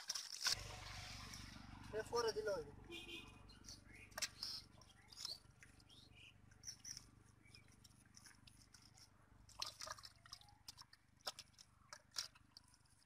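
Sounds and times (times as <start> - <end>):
hands squelching in mud: 6.6 - 13.0.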